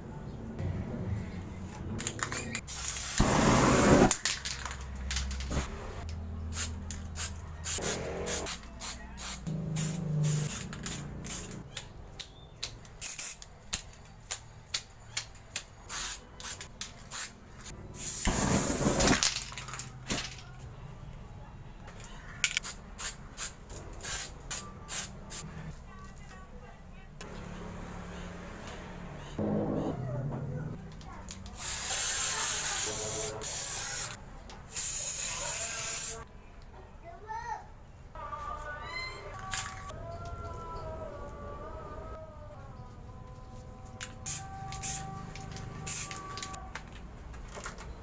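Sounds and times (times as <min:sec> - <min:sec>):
spray-paint cans hissing: 0:02.2 - 0:04.5, 0:06.5 - 0:11.6, 0:13.0 - 0:13.5, 0:15.9 - 0:19.7, 0:22.5 - 0:25.4, 0:31.4 - 0:36.2, 0:44.1 - 0:46.6.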